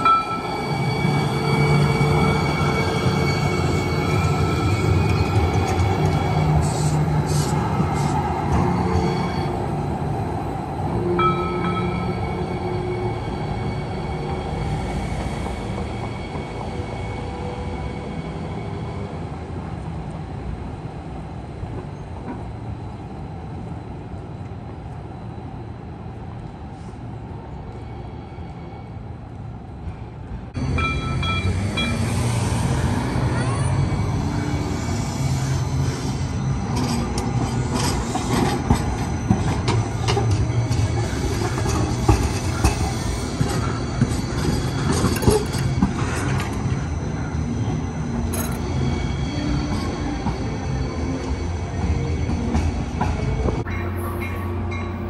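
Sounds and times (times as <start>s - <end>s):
train wheels squealing: 0.0s - 9.7s, 11.2s - 19.3s, 30.7s - 55.0s
light rail train rumbling: 0.0s - 55.0s.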